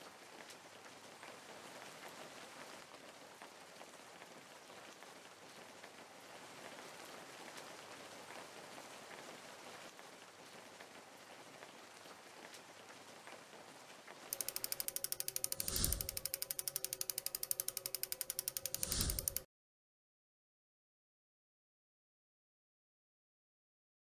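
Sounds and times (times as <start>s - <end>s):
fast ratchet-like ticking: 14.3s - 19.5s.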